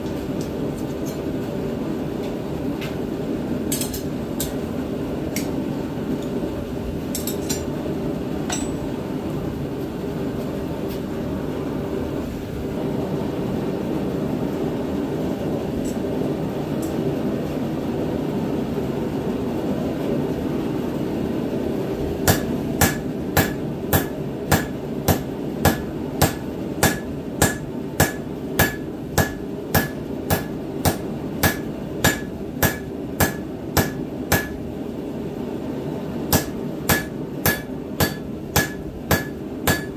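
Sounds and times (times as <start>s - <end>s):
hammer striking hot steel on anvil: 8.4s - 8.9s, 22.2s - 34.6s, 36.3s - 39.9s.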